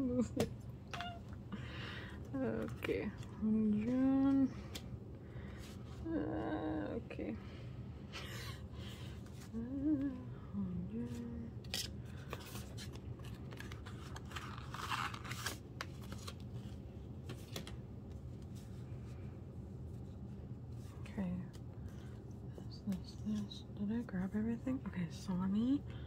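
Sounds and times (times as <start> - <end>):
plastic packaging crinkling and tearing: 11.6 - 16.8.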